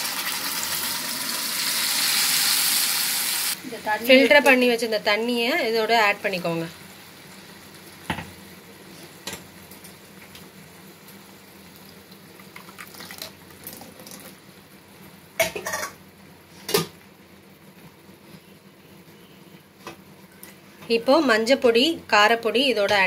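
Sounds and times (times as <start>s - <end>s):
water pouring into pan: 0.0s - 3.6s, 12.4s - 14.4s.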